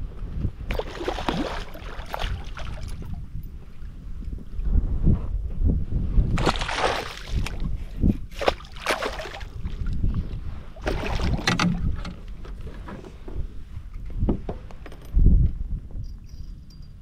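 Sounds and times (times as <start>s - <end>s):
wind buffeting microphone: 0.0s - 17.0s
water splashing: 0.7s - 3.1s, 6.4s - 7.6s, 8.4s - 9.8s, 10.8s - 11.5s.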